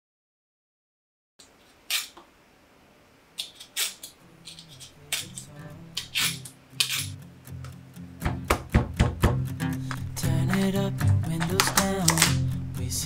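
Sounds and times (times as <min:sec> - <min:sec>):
knife scraping squash rind: 0:01.8 - 0:02.2, 0:03.4 - 0:07.2.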